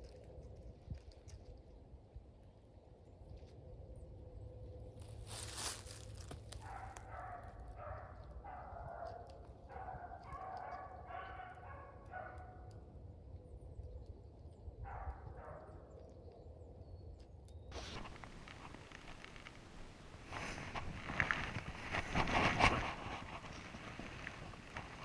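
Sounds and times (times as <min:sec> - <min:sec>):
hounds baying: 0:06.6 - 0:12.7.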